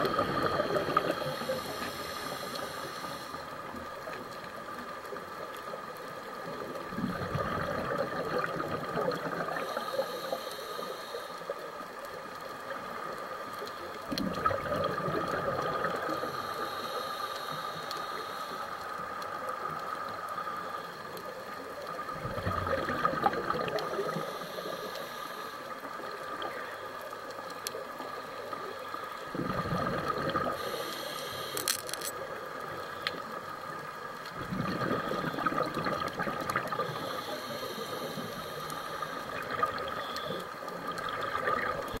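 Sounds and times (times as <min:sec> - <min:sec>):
bubbles rushing underwater: 0:06.9 - 0:09.6, 0:14.1 - 0:16.2, 0:22.1 - 0:24.2, 0:29.3 - 0:30.6, 0:34.4 - 0:36.9, 0:39.3 - 0:40.0, 0:40.8 - 0:42.0.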